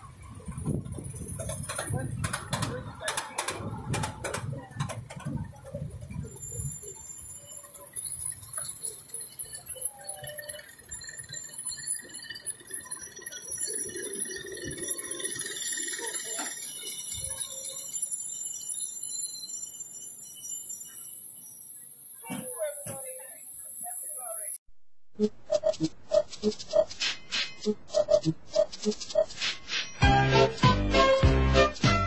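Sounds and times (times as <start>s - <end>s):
miniature train rolling on track: 0.0s - 24.3s
high-pitched ringing tones: 6.1s - 24.6s.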